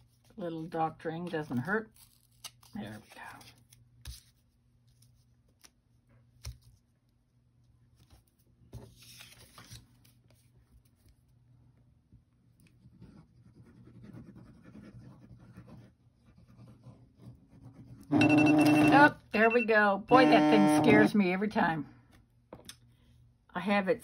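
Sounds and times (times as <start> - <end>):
cardstock rustling and scraping: 8.0 - 11.1.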